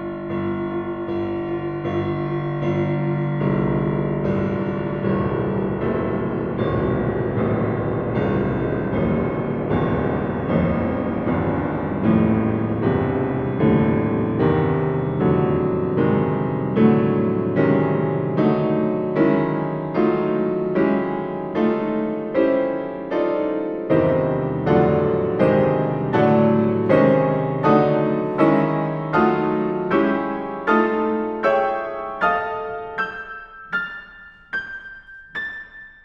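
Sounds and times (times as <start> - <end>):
piano playing repeated chords: 0.0 - 36.0.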